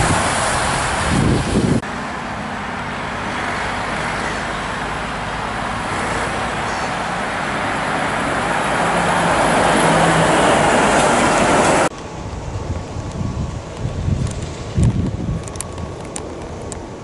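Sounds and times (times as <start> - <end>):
truck driving past: 0.0 - 12.7.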